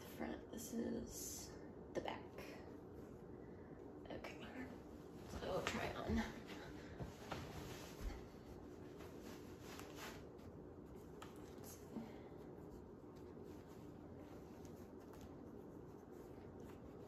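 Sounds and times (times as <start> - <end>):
low room hum: 0.0 - 17.0
fabric rustling: 4.7 - 17.0.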